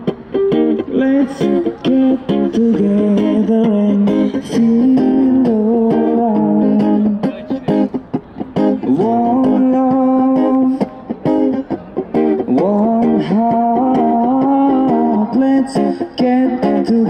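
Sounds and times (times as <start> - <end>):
acoustic guitar strumming: 0.0 - 17.0
person singing: 0.8 - 7.3, 8.6 - 11.0, 12.4 - 17.0.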